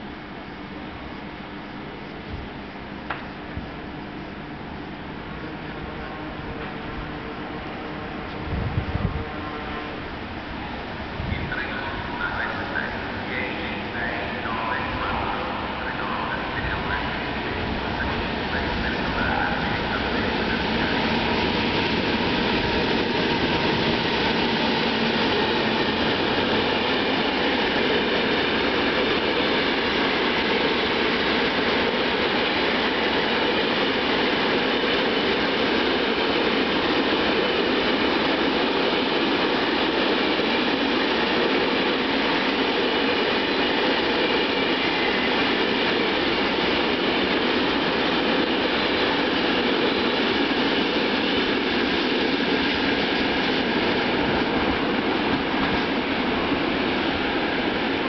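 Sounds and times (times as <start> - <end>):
freight train passing: 0.0 - 58.0.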